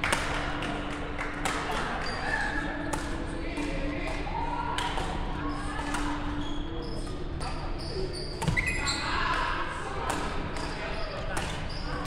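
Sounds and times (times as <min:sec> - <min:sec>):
murmur of voices: 0:00.0 - 0:12.0
racket striking shuttlecock: 0:02.9 - 0:04.2, 0:08.4 - 0:08.6
shoe squeaks on court floor: 0:07.8 - 0:09.1.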